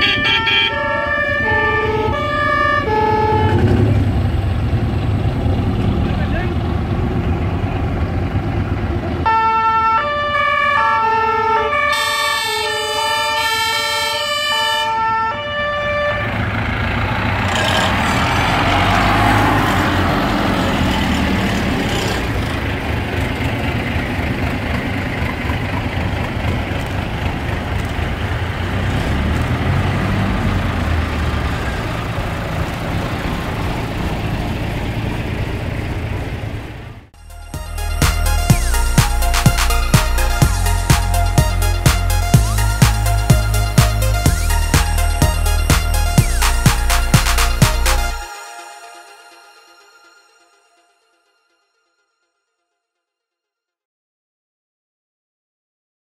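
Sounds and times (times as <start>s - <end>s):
fire engine siren horn: 0.0s - 4.4s, 9.2s - 21.4s
diesel engines passing: 0.0s - 48.6s.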